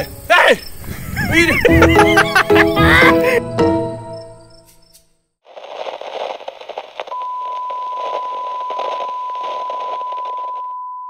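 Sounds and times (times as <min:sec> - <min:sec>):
static hiss with crackles: 0:05.5 - 0:10.7
steady test-tone beep: 0:07.1 - 0:11.0.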